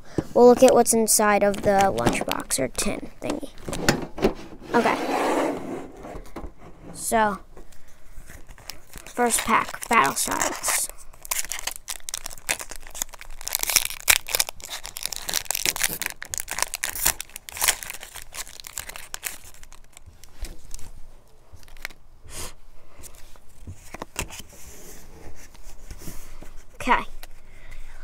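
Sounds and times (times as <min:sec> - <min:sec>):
cards rustling: 0:00.6 - 0:03.8, 0:07.7 - 0:22.0
foil wrapper tearing and crinkling: 0:08.5 - 0:20.8, 0:21.6 - 0:22.0.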